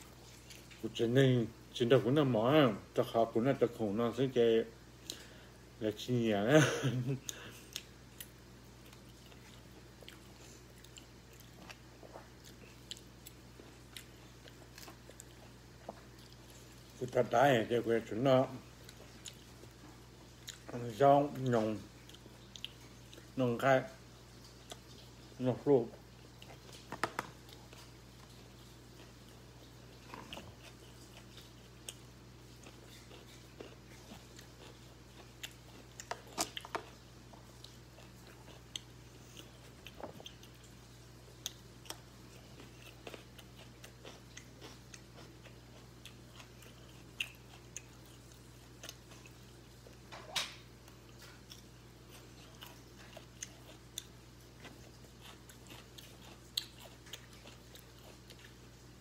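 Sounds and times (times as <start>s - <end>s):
steady low hum: 0.0s - 59.0s
person chewing and biting: 7.2s - 17.0s, 18.7s - 23.4s, 26.2s - 58.9s.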